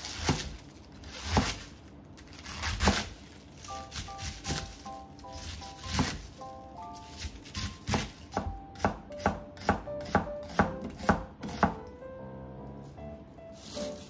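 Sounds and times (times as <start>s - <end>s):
knife chopping on plastic board: 0.0s - 1.6s, 2.4s - 3.2s, 3.9s - 4.8s, 5.4s - 6.2s, 7.0s - 11.9s.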